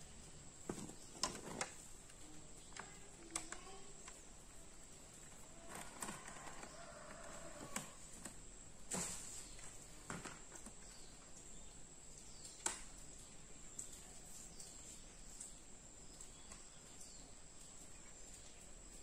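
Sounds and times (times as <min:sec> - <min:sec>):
faint sharp clicks: 0:10.5 - 0:19.0.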